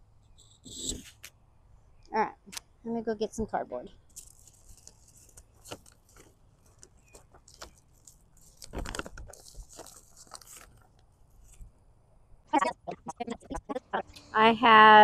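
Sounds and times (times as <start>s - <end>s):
crunches and rustles: 4.1s - 11.8s.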